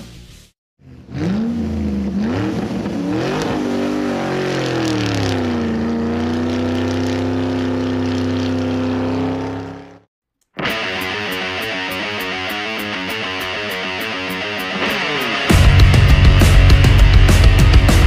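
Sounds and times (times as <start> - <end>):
racing car engine accelerating: 0.8 - 10.1, 14.1 - 18.0.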